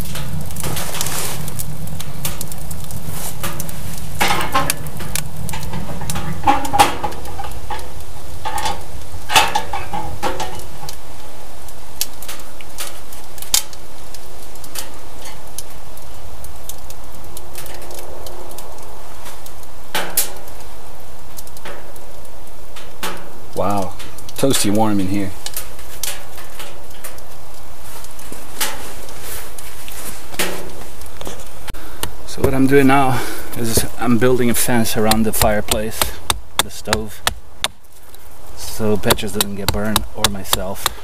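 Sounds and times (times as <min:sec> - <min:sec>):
wood fire crackling and popping: 0:00.0 - 0:41.0.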